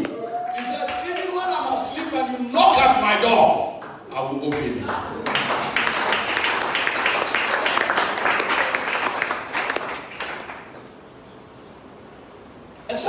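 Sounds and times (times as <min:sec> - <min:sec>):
applause: 0:00.5 - 0:01.8, 0:03.8 - 0:10.9.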